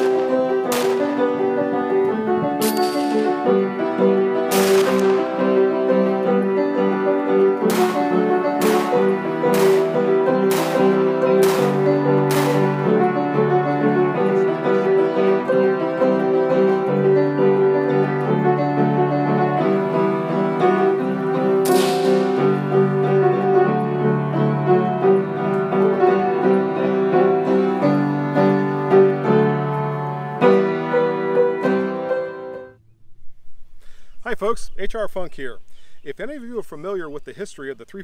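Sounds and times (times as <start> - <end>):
sharp crack: 0.0 - 16.2, 19.8 - 23.7
piano background music: 0.0 - 33.8.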